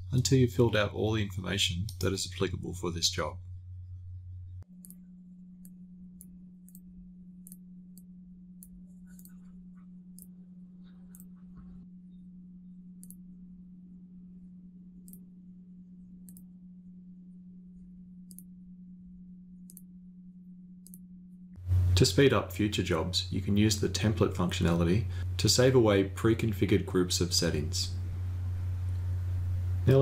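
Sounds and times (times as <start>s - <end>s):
steady low hum: 0.0s - 30.0s
computer mouse clicking: 4.8s - 9.5s, 11.1s - 11.4s, 13.0s - 13.2s, 16.2s - 16.5s, 18.3s - 18.5s, 19.6s - 19.9s.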